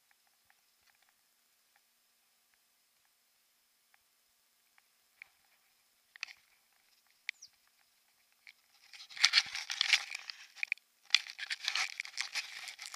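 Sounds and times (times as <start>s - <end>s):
camera crackling and rubbing: 8.4s - 12.9s.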